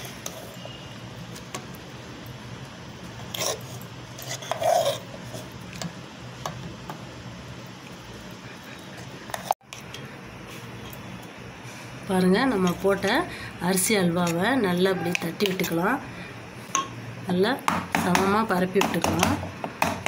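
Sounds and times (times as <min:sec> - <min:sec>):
spoon scraping metal bowl: 0:00.0 - 0:01.5, 0:03.2 - 0:05.8.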